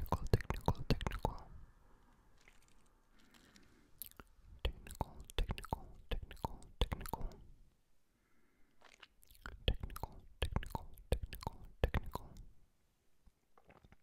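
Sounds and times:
wet mouth clicks and lip smacks: 0.0s - 1.5s, 4.0s - 7.5s, 8.8s - 12.5s
faint breathing: 6.6s - 8.8s.

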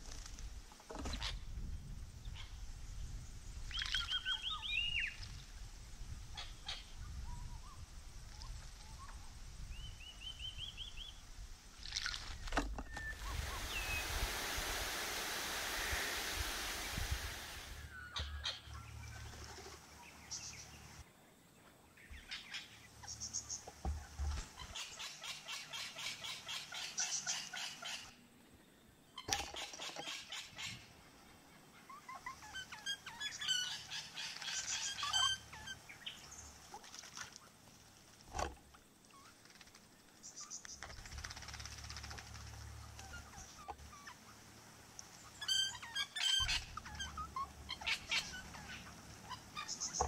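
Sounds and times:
wind rumble on microphone: 0.0s - 11.8s, 12.4s - 14.9s, 15.7s - 17.9s
birds chirping and chattering: 39.1s - 50.0s.

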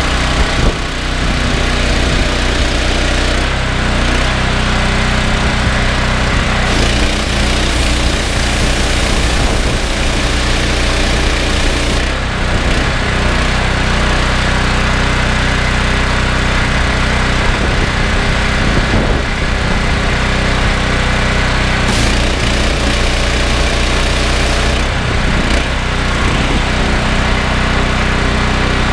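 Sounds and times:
petrol engine running: 0.0s - 28.9s
high-pressure water spray hissing: 6.2s - 12.2s, 21.8s - 24.9s.

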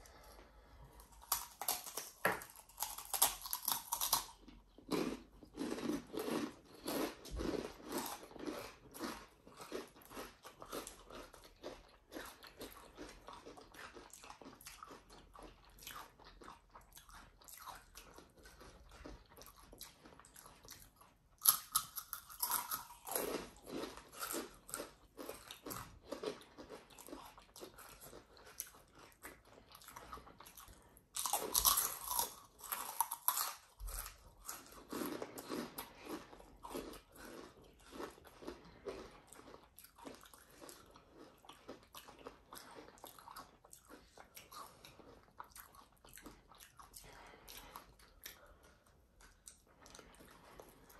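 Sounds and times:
chewing: 0.0s - 50.9s
crisp crunching of chips: 1.0s - 16.4s, 17.6s - 46.8s.

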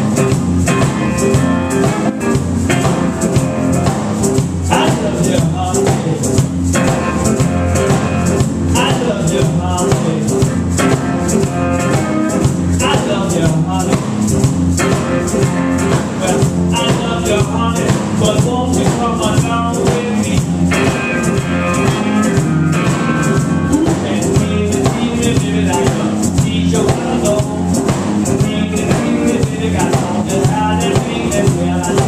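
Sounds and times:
drum kit: 0.0s - 32.0s
electric guitars: 0.0s - 32.0s
man singing: 4.6s - 32.0s.

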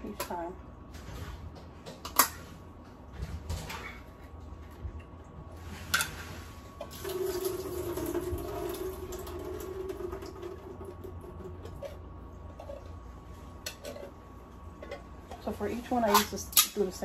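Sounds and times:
steady low hum: 0.0s - 17.0s
kitchen faucet running water: 6.8s - 11.8s.

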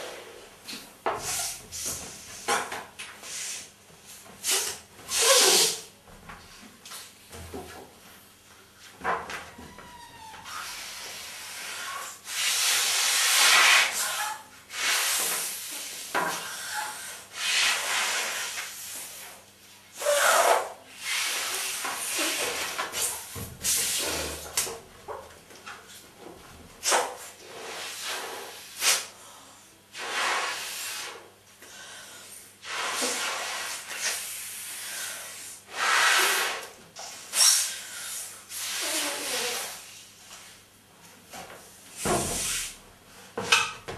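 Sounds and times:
balloon being blown up by mouth: 4.4s - 5.9s
person inhaling: 31.6s - 32.4s.

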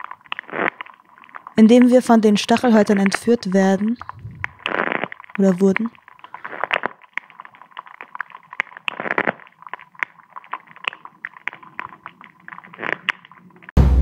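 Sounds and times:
snail eating clicks and scratches: 0.0s - 13.8s
drum-kit music: 13.8s - 14.0s.

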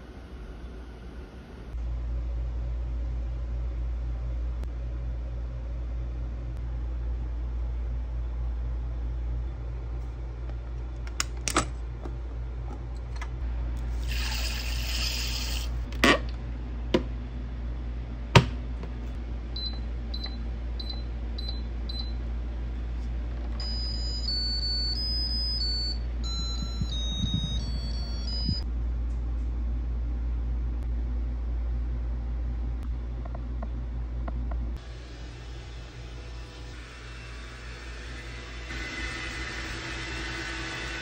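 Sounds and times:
electronic chime melody: 23.6s - 28.6s
rice cooker beeping: 23.6s - 28.6s.

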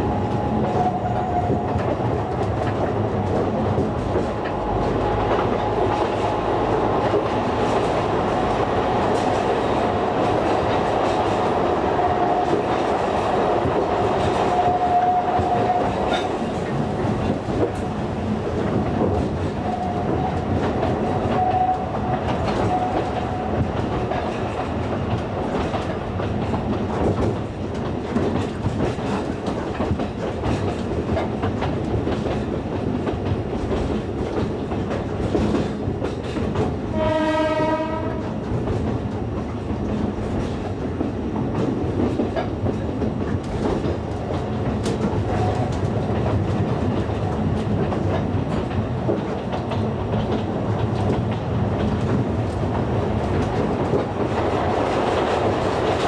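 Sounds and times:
train rolling noise: 0.0s - 56.0s
train horn: 14.4s - 16.3s, 36.9s - 38.4s
wheels clattering on track: 15.7s - 56.0s.

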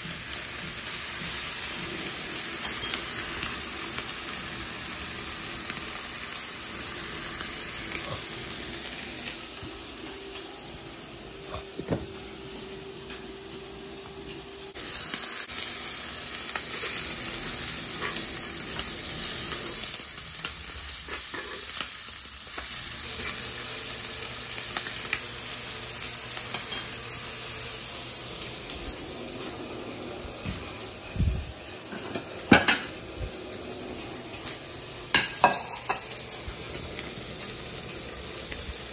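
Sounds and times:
meat sizzling on a griddle: 0.0s - 10.0s, 14.6s - 38.9s.

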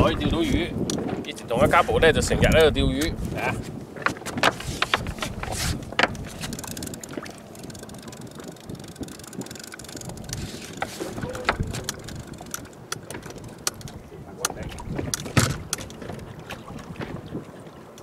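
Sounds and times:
water noise around a hull: 0.0s - 18.0s
wind on the microphone: 0.0s - 18.0s
sharp clicks and knocks: 4.0s - 16.2s.

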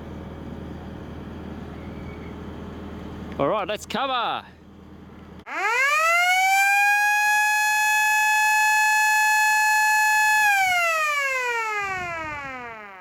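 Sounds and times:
warning siren: 5.5s - 13.0s.

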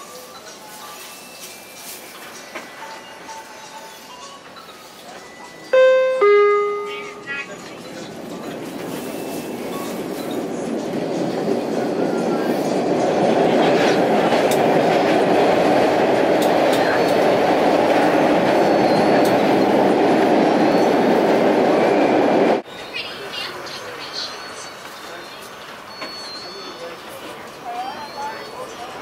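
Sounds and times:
subway car wheels rumbling on rail: 6.0s - 23.0s.

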